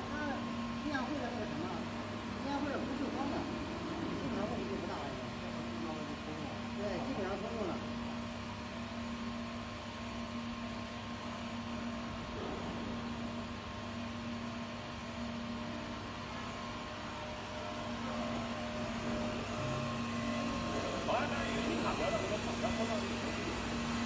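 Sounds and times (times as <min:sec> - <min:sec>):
electrical hum of welding machine: 0:00.0 - 0:24.0
welding arc hiss: 0:20.5 - 0:24.0.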